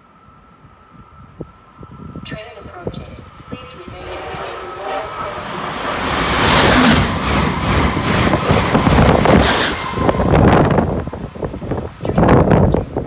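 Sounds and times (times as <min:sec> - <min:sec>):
high-speed train passing: 0:00.0 - 0:13.0.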